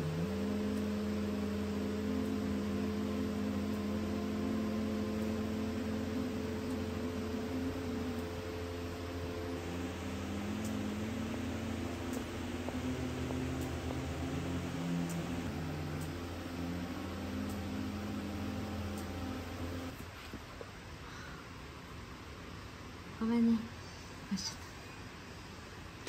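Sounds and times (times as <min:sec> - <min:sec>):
animal moaning hum: 0:00.0 - 0:20.0
ventilation hum: 0:00.0 - 0:26.0.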